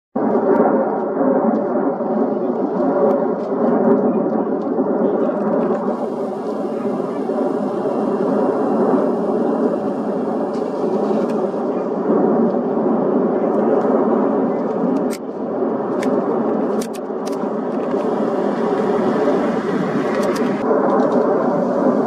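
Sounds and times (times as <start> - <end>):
volcano roaring: 0.2 - 22.0
sharp clicks: 16.0 - 17.5.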